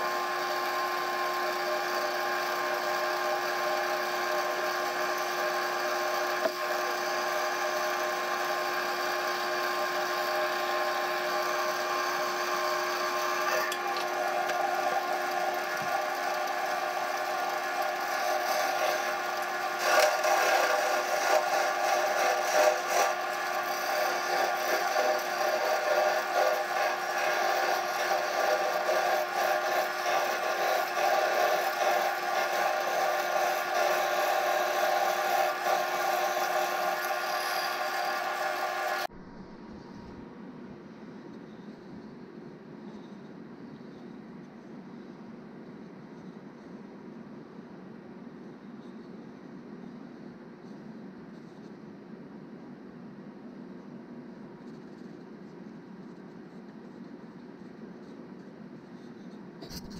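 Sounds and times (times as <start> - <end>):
lathe motor whirring: 0.0 - 40.3.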